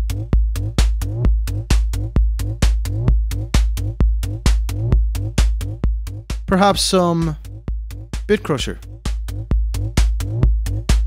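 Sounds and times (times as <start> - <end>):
electronic dance beat: 6.5 - 7.4, 8.3 - 8.9.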